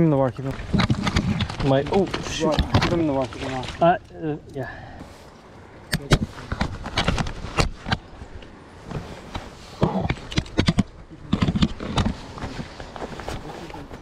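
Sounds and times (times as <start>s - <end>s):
small water splashes: 2.1s - 4.4s.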